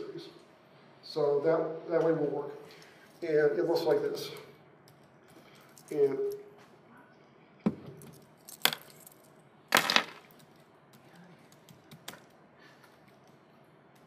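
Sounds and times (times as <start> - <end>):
laptop keyboard typing: 10.9 - 12.4.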